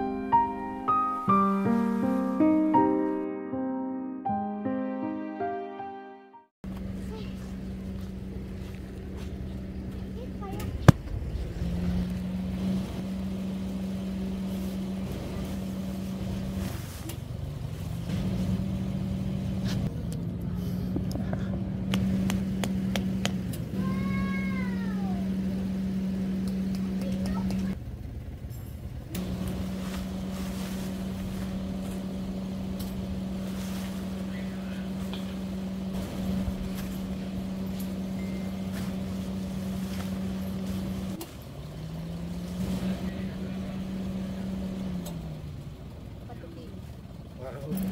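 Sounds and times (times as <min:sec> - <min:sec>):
low motor hum: 0:06.6 - 0:47.9
motor droning: 0:24.4 - 0:27.8, 0:29.1 - 0:46.2.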